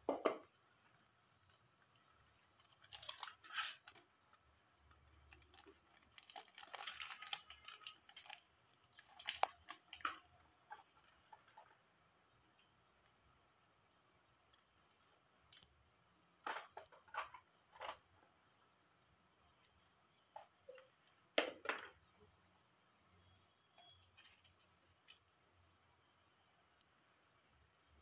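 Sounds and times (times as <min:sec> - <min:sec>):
paper rustling and crinkling: 0:02.5 - 0:10.2.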